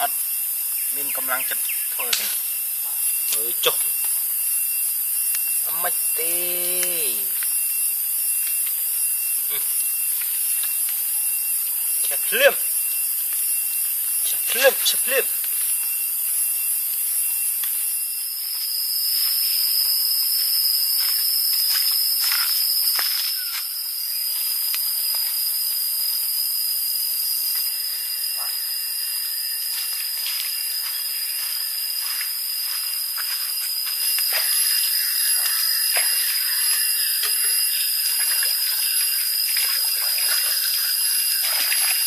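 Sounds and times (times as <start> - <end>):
high-pitched insect buzzing: 0.0 - 42.0.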